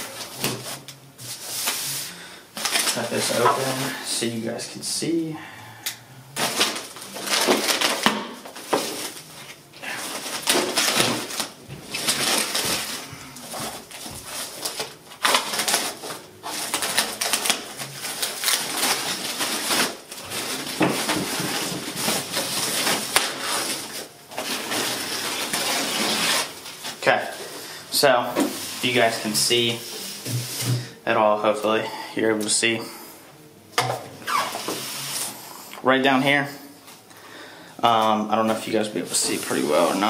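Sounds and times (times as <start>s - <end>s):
plastic bag crinkling: 2.6s - 4.2s, 6.4s - 30.1s.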